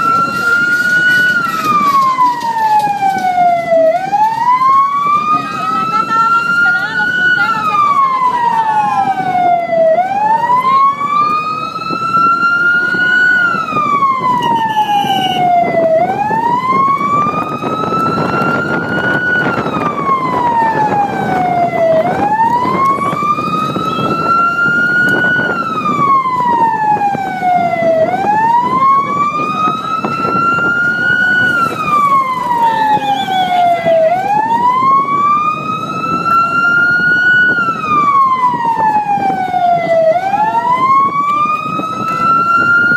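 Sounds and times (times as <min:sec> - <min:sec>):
siren wailing: 0:00.0 - 0:42.9
vehicle rumble on road: 0:00.0 - 0:42.9.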